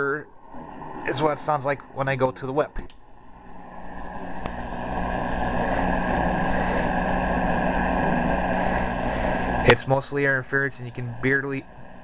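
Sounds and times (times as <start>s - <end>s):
radio static and interference: 3.5s - 10.0s.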